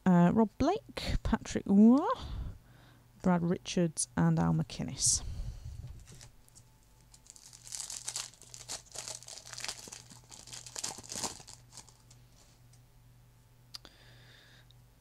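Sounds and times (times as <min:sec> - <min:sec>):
foil wrapper crinkling and tearing: 0:06.0 - 0:12.2.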